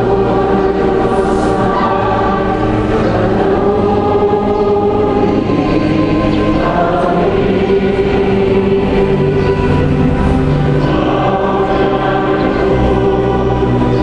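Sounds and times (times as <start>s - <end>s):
choir singing held chords: 0.0s - 14.0s.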